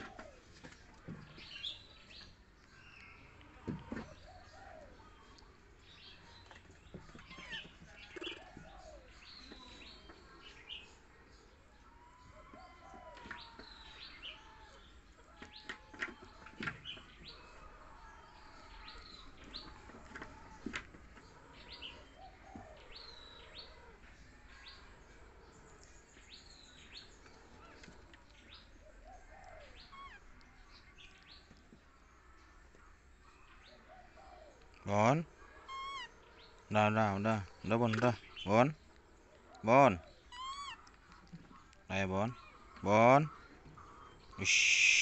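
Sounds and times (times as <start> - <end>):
small bird chirping: 25.8 - 31.7, 40.1 - 42.9.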